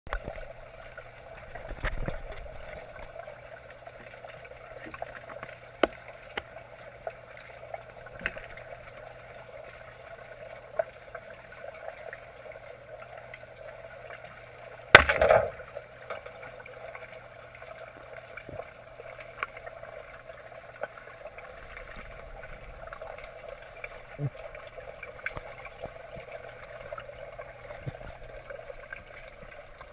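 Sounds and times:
underwater hum: 0.1 - 29.9
speargun firing crack: 15.0 - 15.6.

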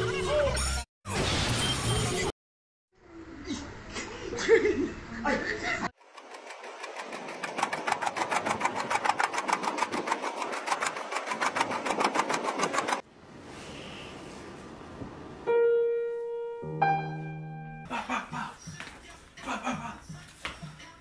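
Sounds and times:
fast rattle of clicks: 6.0 - 13.0.

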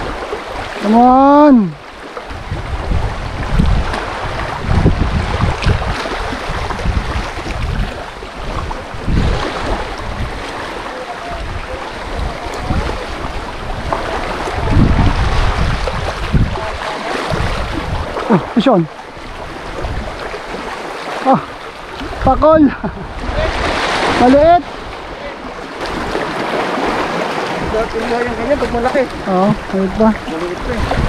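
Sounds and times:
small waves lapping on rocks: 0.0 - 31.0
wind buffeting microphone: 0.0 - 31.0.

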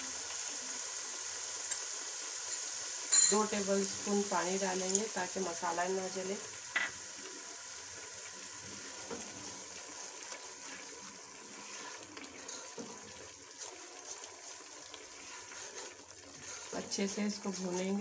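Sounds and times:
masala sizzling in hot oil: 0.0 - 18.0
spoon scraping metal pot: 11.5 - 17.0.

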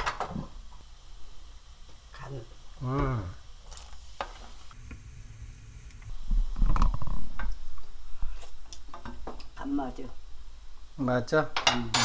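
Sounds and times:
water boiling in a pot: 0.0 - 7.9.

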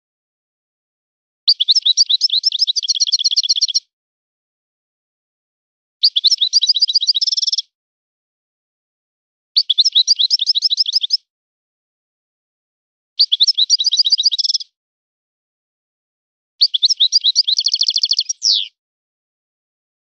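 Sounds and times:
goldfinch twittering song: 1.5 - 3.8, 6.0 - 7.7, 9.6 - 11.2, 13.2 - 14.7, 16.6 - 18.8
buzzy bird trill: 6.0 - 7.7, 13.2 - 14.7, 16.6 - 18.8.

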